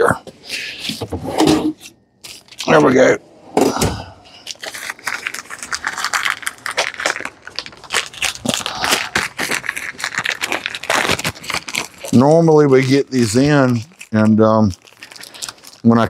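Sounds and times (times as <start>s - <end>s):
plastic packaging crinkling: 2.2s - 2.8s, 4.3s - 16.0s.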